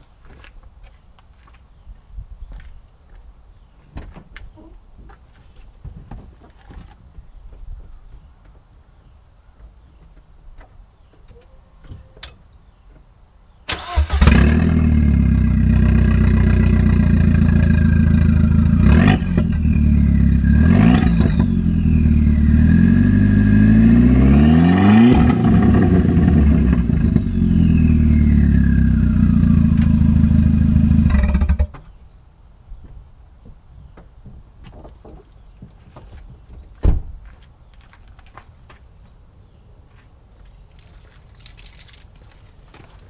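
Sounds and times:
loud car engine revving: 14.0 - 31.7.

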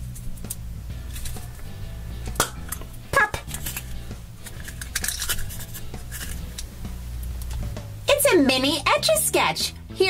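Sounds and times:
plastic capsule clicks and snaps: 2.3 - 7.6.

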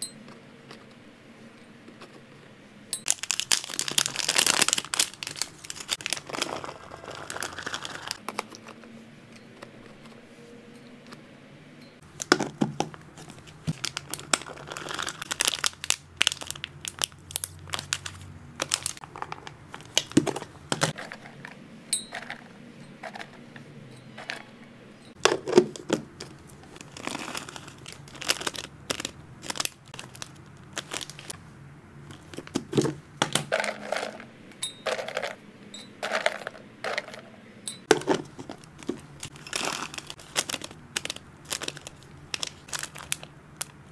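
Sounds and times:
plastic bag crinkling: 3.1 - 8.4, 13.2 - 21.1, 25.2 - 31.4, 37.9 - 43.9
plastic containers clicking: 12.2 - 15.7, 18.6 - 21.5, 25.2 - 31.3, 32.1 - 34.3, 36.0 - 37.3, 37.9 - 43.8.

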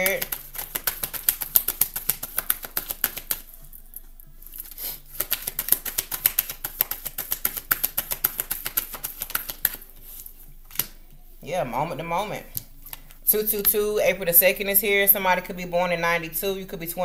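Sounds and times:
cards being shuffled: 0.0 - 4.0, 4.7 - 11.0.

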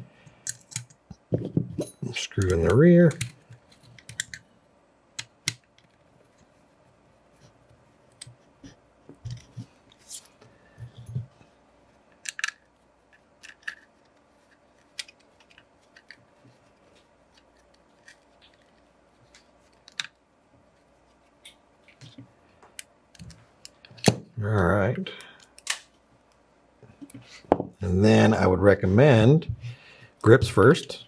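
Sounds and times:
metal and plastic parts clicking: 0.4 - 1.0, 2.3 - 4.4, 12.2 - 16.2.

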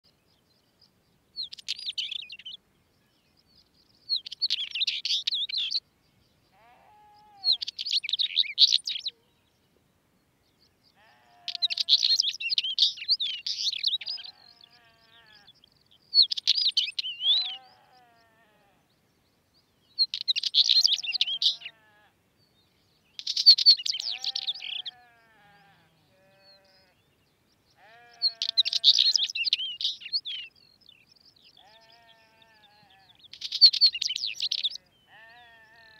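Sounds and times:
bird singing chattering phrases: 1.4 - 2.6, 4.1 - 5.8, 6.6 - 9.2, 10.9 - 18.8, 19.9 - 22.0, 23.1 - 27.1, 27.8 - 35.8.

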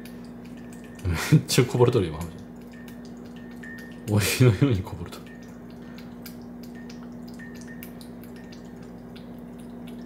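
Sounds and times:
cat lapping water: 0.0 - 10.0.

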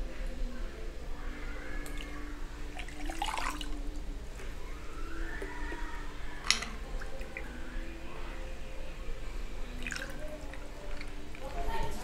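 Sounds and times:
juice pouring and splashing: 9.8 - 11.4.

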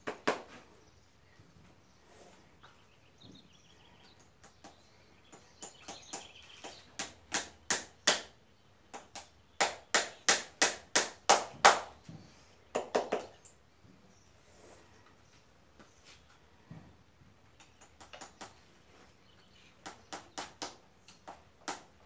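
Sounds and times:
hammer tapping horseshoe nails: 19.8 - 21.9.

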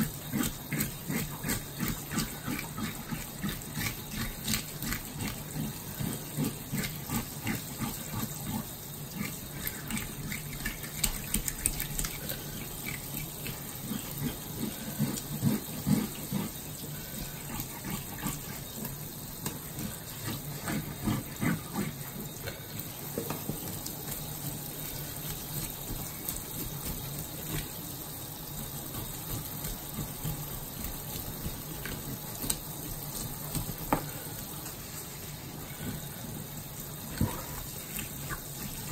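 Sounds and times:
hands splashing and rubbing fish: 9.2 - 22.8.

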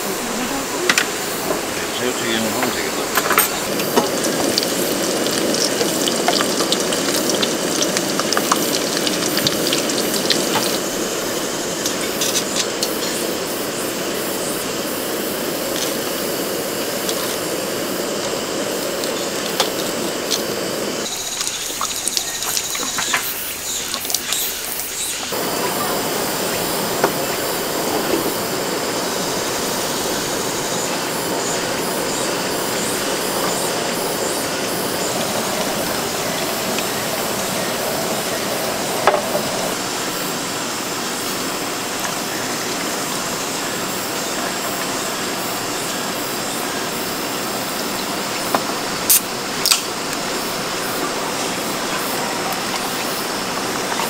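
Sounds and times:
heavy rain on a tarp: 0.0 - 22.7, 25.3 - 54.0
raindrop ticks: 2.6 - 10.9, 21.1 - 24.5.

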